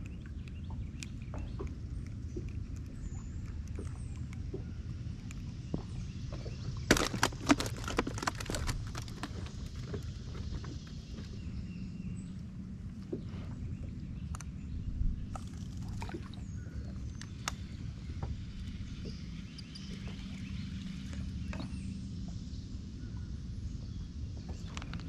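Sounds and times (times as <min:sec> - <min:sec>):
clicks and knocks of gear: 0:00.0 - 0:11.4.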